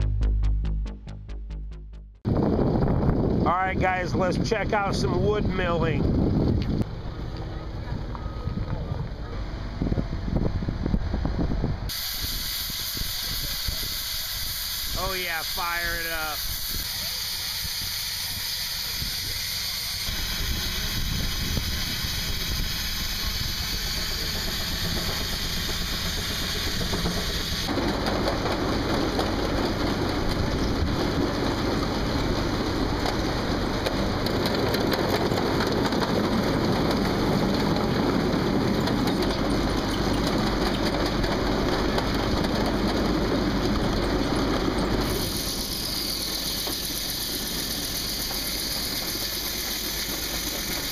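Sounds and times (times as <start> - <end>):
circular sawmill din: 2.3 - 50.9
steam hissing: 11.9 - 27.8, 44.9 - 50.9
steam engine running: 11.9 - 50.9.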